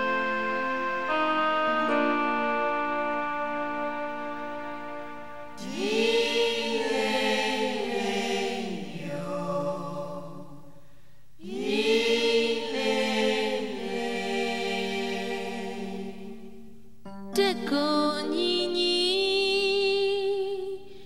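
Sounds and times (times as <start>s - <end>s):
sustained backing chord: 0.0s - 9.2s
voices singing chanted phrases: 5.6s - 10.6s, 11.4s - 16.6s.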